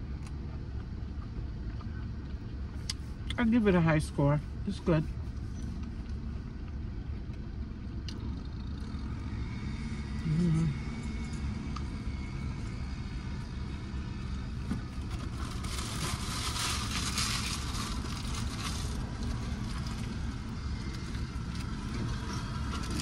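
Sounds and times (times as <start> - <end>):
car engine idling: 0.0 - 23.0.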